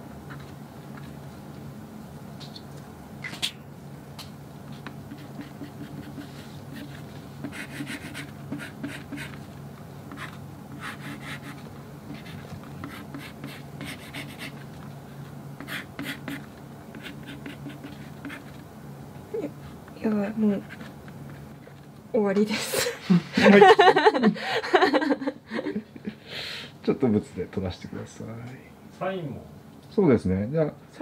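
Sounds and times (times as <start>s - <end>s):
pen scratching on board: 4.8s - 9.4s, 10.1s - 14.6s, 15.6s - 18.6s.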